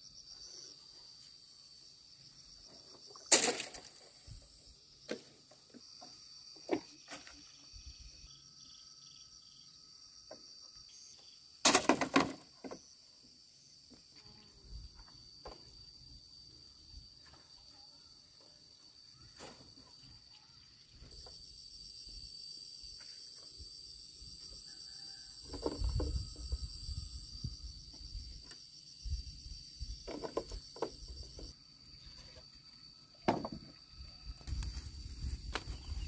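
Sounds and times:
insects chirring: 0.0s - 36.0s
bamboo clattering: 2.8s - 4.2s, 11.6s - 12.8s, 25.4s - 26.2s, 30.0s - 31.5s, 33.2s - 33.7s
bamboo poles knocking: 33.2s - 33.7s.

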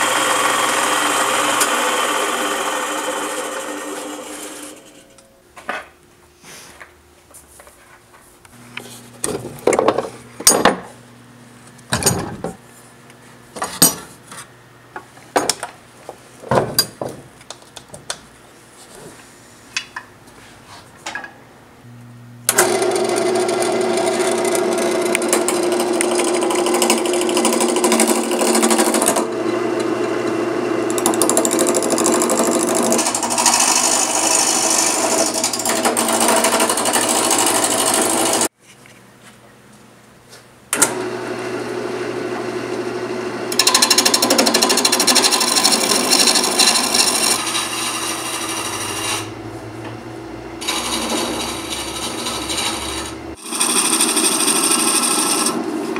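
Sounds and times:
gouge scraping spinning wood: 0.0s - 5.0s, 22.6s - 29.5s, 30.9s - 38.5s, 43.6s - 49.4s, 50.6s - 55.9s
wood lathe motor hum: 0.0s - 5.1s, 22.5s - 38.5s, 40.8s - 50.0s, 50.6s - 55.9s.

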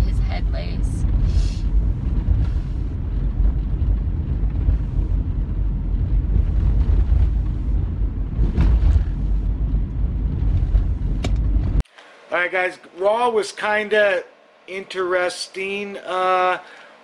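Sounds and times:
car cabin road and engine rumble: 0.0s - 11.8s.

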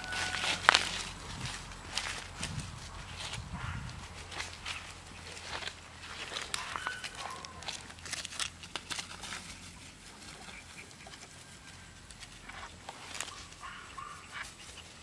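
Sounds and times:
puppies squeaking: 0.0s - 1.2s, 3.5s - 8.0s, 9.4s - 15.0s
paws pattering on leaves: 0.0s - 15.0s.

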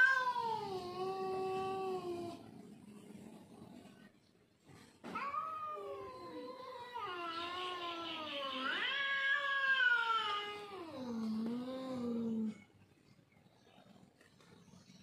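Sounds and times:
cat yowling: 5.2s - 10.7s.

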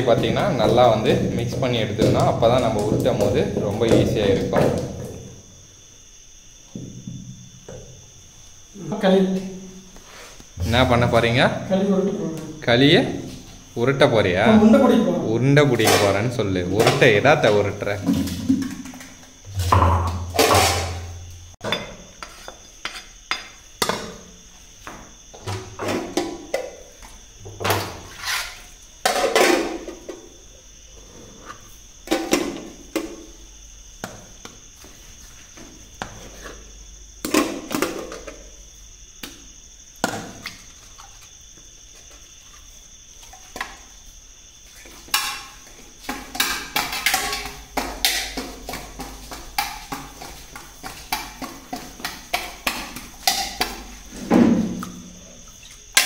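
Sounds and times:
metal pots and lids clinking: 19.5s - 21.0s, 45.1s - 48.5s, 52.3s - 53.8s.

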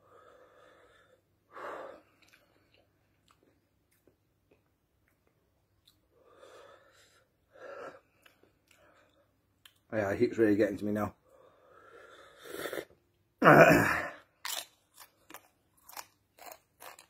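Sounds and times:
man breathing hard: 0.0s - 2.2s
chips crunching: 14.4s - 17.0s.

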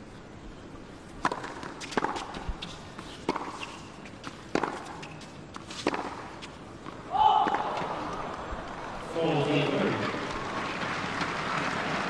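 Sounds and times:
shoes on court: 1.1s - 12.0s
tennis ball struck by racket: 1.2s - 9.0s
tennis ball bouncing: 1.2s - 11.8s.

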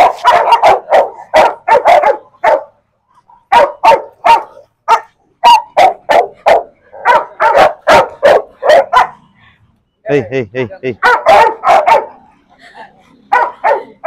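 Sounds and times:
dog barking: 0.0s - 2.7s, 3.5s - 9.3s, 11.0s - 12.3s, 13.3s - 14.0s.

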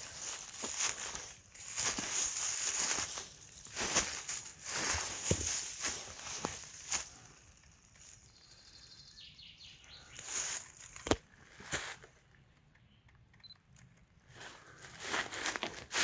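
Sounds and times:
footsteps crunching dry leaves: 0.0s - 8.3s, 10.0s - 12.1s, 14.4s - 16.0s.

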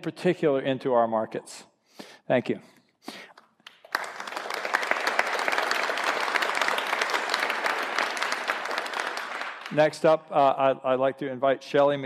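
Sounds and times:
audience applauding: 3.7s - 10.2s.

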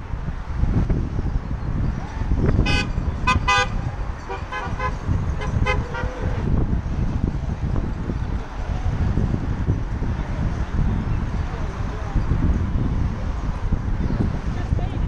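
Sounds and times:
wind buffeting microphone: 0.0s - 15.0s
car horns tooting: 2.5s - 6.6s.

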